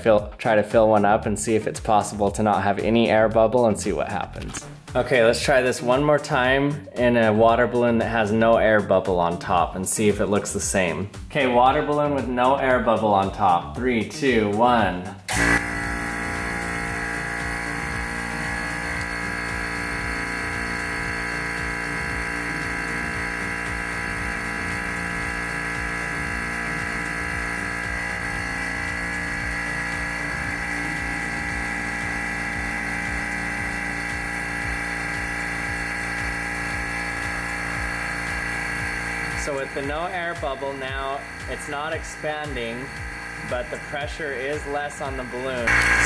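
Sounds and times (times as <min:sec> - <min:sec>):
vacuum pump humming: 0:15.3 - 0:46.0.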